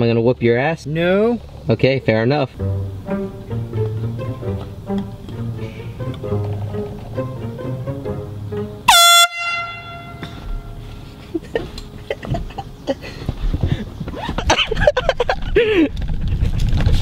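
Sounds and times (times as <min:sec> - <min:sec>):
loud air horn blast: 0:08.8 - 0:11.2.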